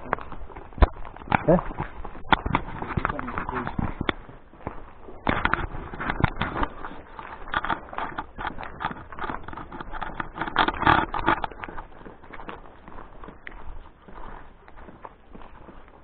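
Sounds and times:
footsteps crunching on dry leaves: 11.4 - 16.0.

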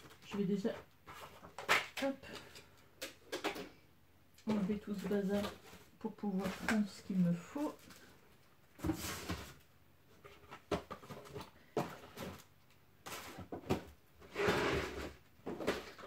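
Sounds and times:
objects knocking and clattering: 8.8 - 12.5.

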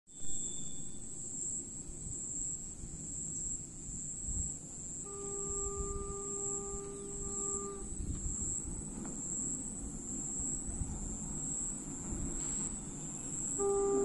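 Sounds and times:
high-pitched insect drone: 0.1 - 2.6, 3.2 - 11.9, 12.7 - 14.0
distant train horn: 5.0 - 8.9, 12.1 - 14.0.

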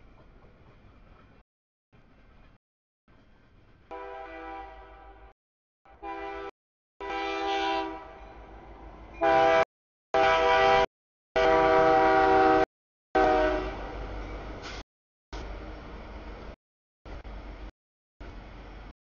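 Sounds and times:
locomotive air horn blasts: 3.9 - 5.3, 5.9 - 8.6, 9.2 - 13.9.

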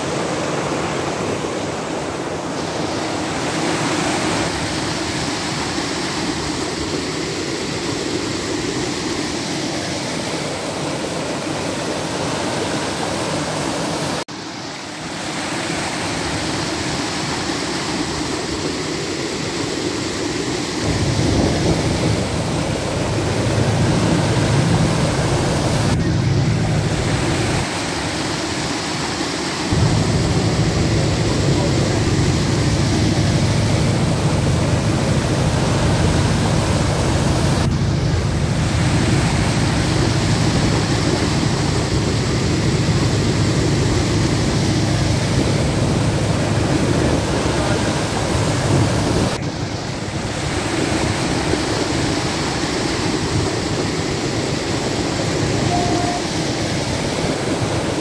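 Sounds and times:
stream water rushing: 0.0 - 58.0
deep rumble: 29.8 - 47.4.

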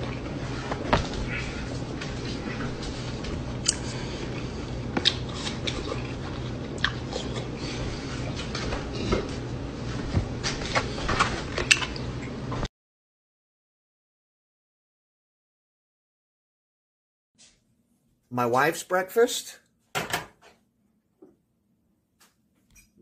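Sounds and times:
person chewing fruit: 0.0 - 9.5, 10.6 - 12.4
low steady hum: 0.0 - 12.7.

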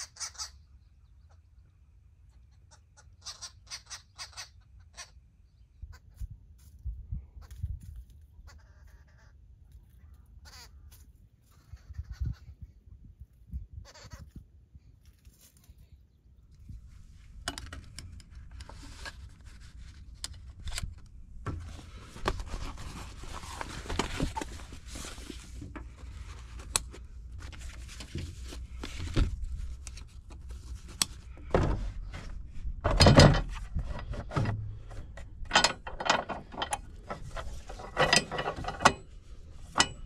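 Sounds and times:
fabric rustling: 21.6 - 31.3.

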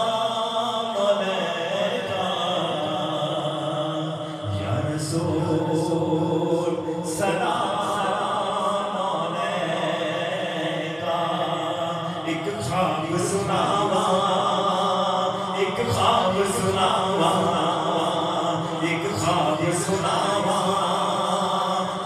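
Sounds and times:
man singing devotional chant: 0.0 - 22.0.

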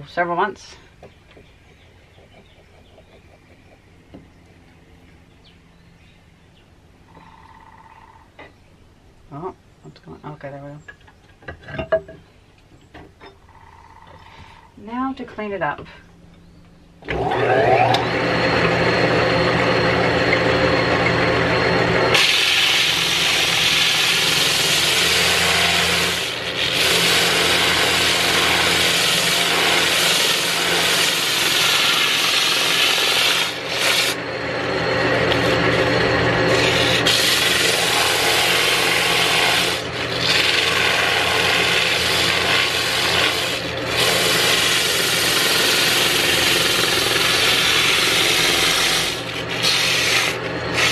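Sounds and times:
wood lathe motor hum: 1.5 - 4.3, 17.0 - 50.9
sandpaper hissing on spinning wood: 21.6 - 34.2, 34.9 - 50.9.

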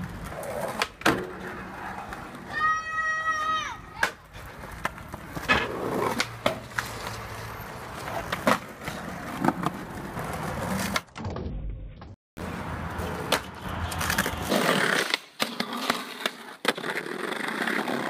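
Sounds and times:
skateboard trucks grinding: 0.0 - 18.0
skateboards popping and clacking: 0.0 - 18.0
wheels rolling over paving: 4.3 - 11.9, 12.9 - 18.0.

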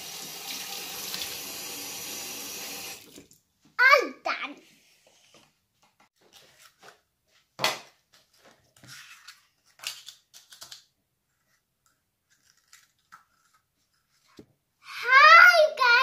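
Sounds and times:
paper liners crinkling: 8.2 - 14.4.

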